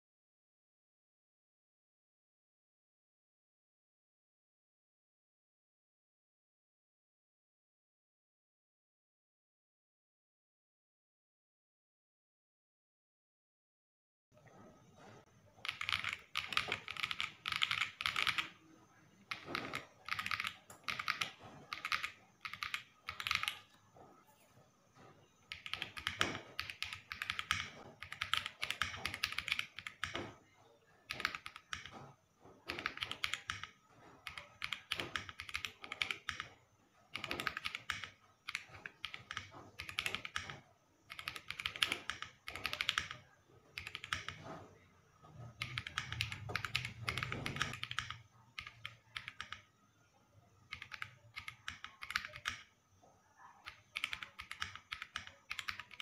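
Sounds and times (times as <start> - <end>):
mechanical keyboard typing: 15.5 - 24.1, 25.0 - 52.8, 53.4 - 56.0.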